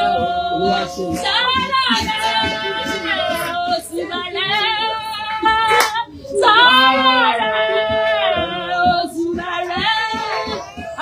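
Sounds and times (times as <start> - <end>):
sharp clap: 5.7 - 6.0
women wailing: 10.0 - 11.0.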